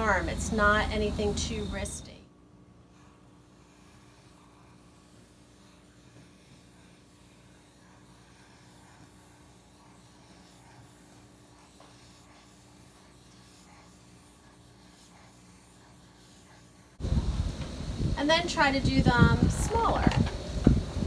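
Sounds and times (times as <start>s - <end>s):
marker drawing on paper: 2.9s - 17.0s.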